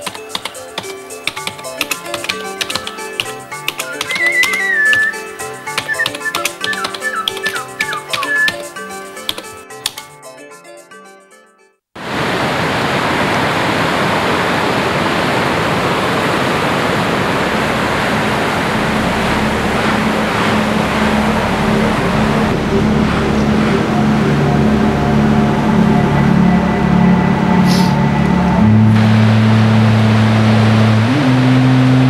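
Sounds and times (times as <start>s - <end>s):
sea surf on stony shore: 12.0s - 24.2s
low sustained music notes: 18.3s - 32.0s.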